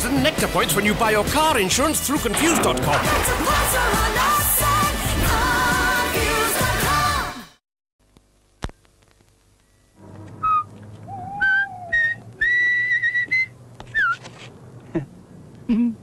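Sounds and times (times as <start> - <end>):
low hum: 2.2 - 6.1
person whistling short notes: 10.4 - 14.2.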